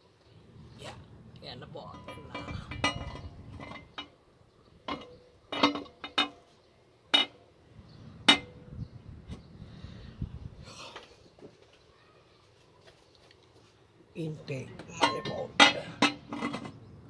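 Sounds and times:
metal parts clinking and knocking: 1.9s - 4.1s.

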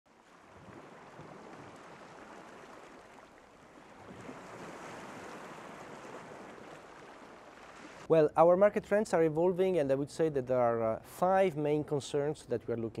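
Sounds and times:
waves breaking on shore: 0.1s - 8.2s.

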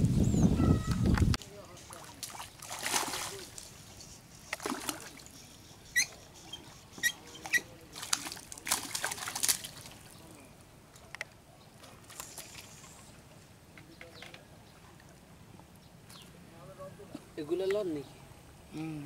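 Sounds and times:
fish splashing in water: 1.9s - 3.6s, 4.5s - 5.4s, 7.5s - 10.1s.

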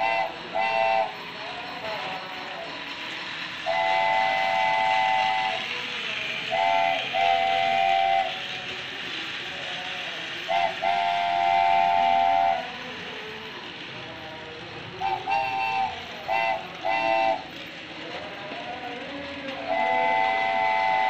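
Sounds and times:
toy train whistle: 0.0s - 8.8s, 9.8s - 13.4s, 15.0s - 17.6s, 19.0s - 21.0s
toy train running on track: 0.0s - 21.0s.

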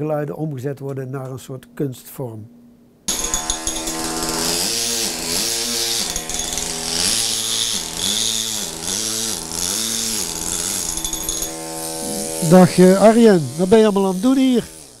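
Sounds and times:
pneumatic hammer buzzing on stone: 3.1s - 15.0s
hissing air: 11.7s - 15.0s.

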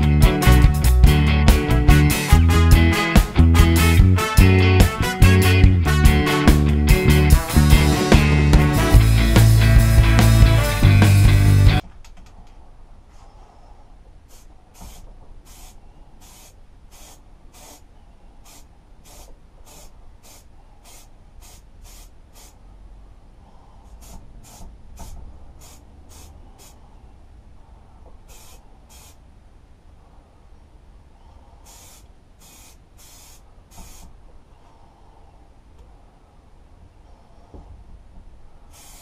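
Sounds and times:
spray paint can hissing: 14.3s - 17.8s, 18.4s - 22.6s, 24.0s - 26.8s, 28.3s - 29.2s, 31.6s - 34.1s, 38.7s - 39.0s.

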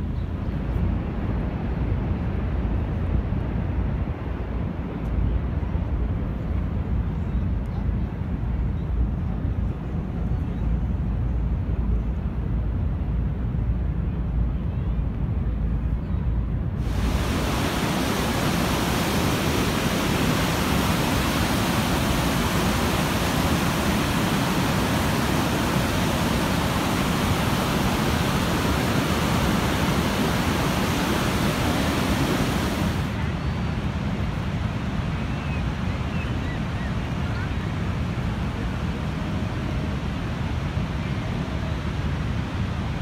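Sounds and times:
whitewater rapids rushing: 16.8s - 33.2s.

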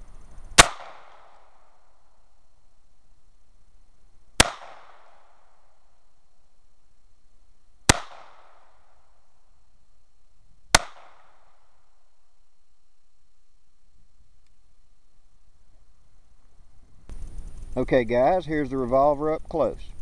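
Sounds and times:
revolver shots echoing: 0.6s - 1.6s, 4.4s - 5.4s, 7.9s - 8.8s, 10.7s - 11.6s.

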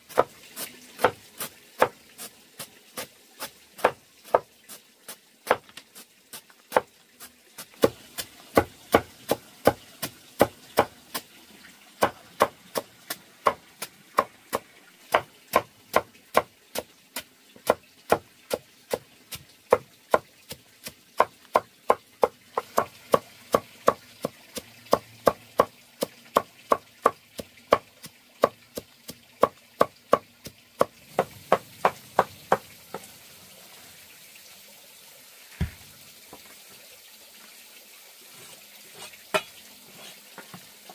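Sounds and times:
knife chopping on wooden board: 30.8s - 33.1s.

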